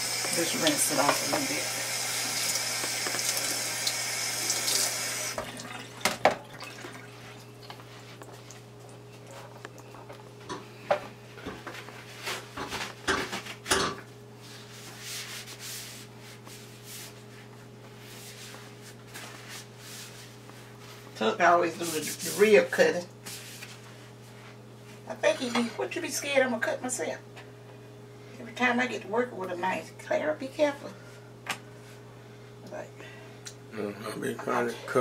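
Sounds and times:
tap water running: 0.0 - 8.6.

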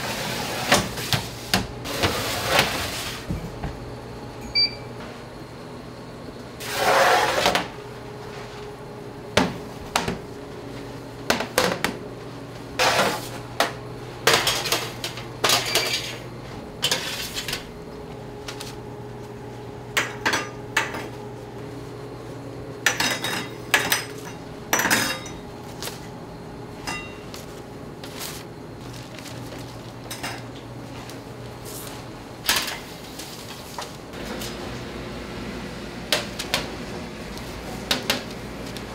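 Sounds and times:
low machine hum: 0.0 - 38.9
metal utensils and trays clinking: 14.2 - 17.7, 22.9 - 25.4, 26.8 - 27.3, 29.8 - 30.6.

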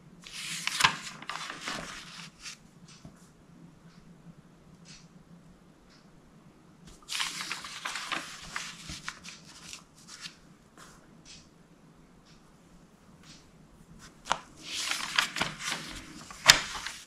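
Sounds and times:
paper page rustling: 0.2 - 2.6, 6.9 - 11.0, 14.0 - 17.0.

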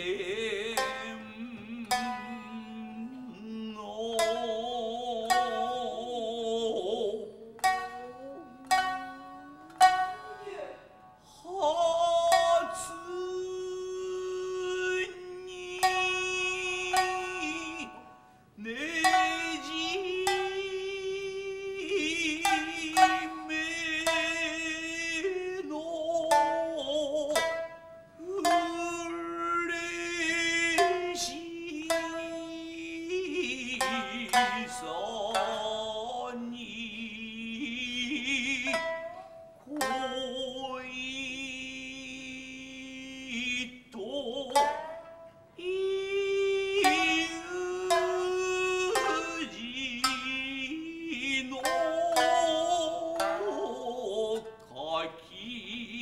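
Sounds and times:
plucked shamisen notes: 0.0 - 56.0
chanter singing with vibrato: 11.5 - 56.0.

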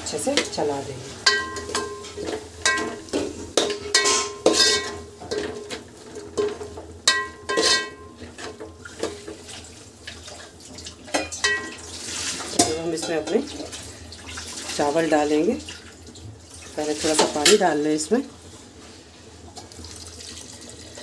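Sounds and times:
spoon stirring in metal pot: 1.2 - 13.8.

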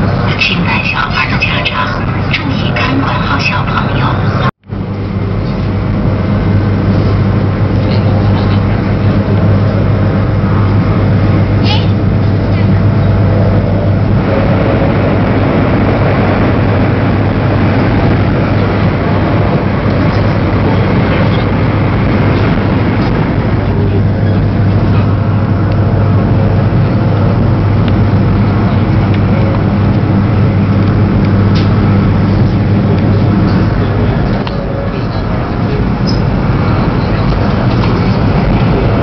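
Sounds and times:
constant low hum: 0.0 - 39.0
train cabin rumble and rush: 0.0 - 39.0.

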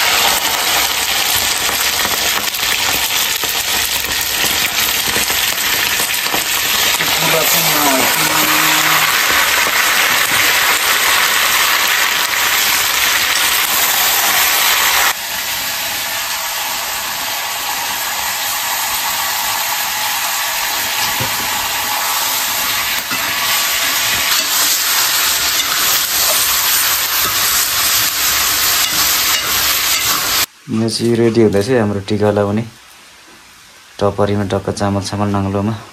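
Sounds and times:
meat sizzling in a wok: 0.0 - 30.5.

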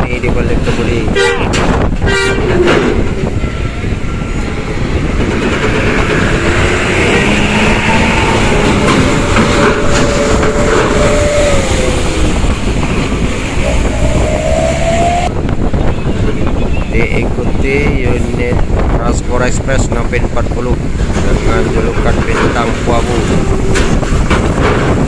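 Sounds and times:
bus diesel engine passing: 4.6 - 15.4
rattling clatter: 21.0 - 25.0.

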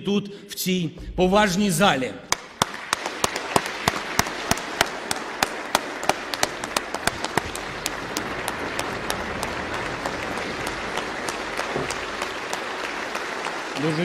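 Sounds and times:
audience clapping: 2.3 - 14.0.

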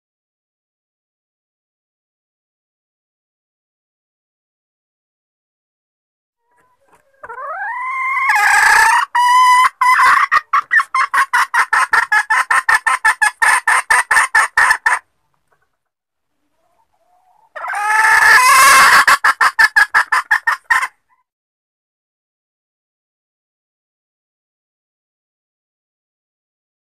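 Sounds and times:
junglefowl hen squawking and clucking: 6.4 - 21.3.

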